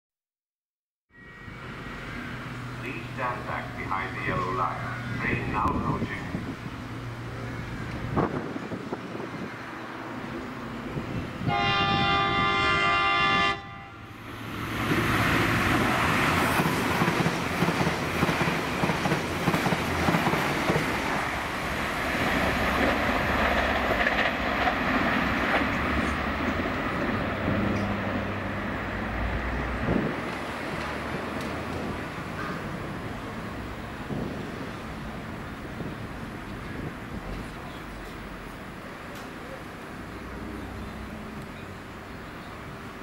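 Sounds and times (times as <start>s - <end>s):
train passing at speed: 1.1s - 43.0s
train horn blast: 11.4s - 14.2s
wheels clicking over rail joints: 22.5s - 28.1s, 30.2s - 33.0s.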